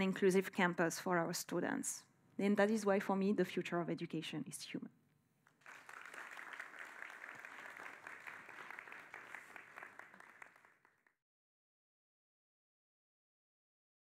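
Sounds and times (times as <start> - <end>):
audience applauding: 5.6 - 11.1.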